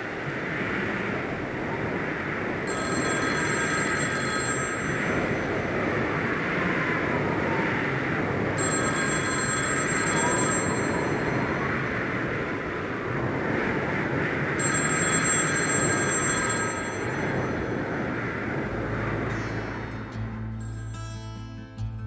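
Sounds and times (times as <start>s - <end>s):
steady rushing noise: 0.0s - 21.0s
telephone ringing: 2.7s - 6.1s, 8.6s - 11.9s, 14.6s - 18.2s.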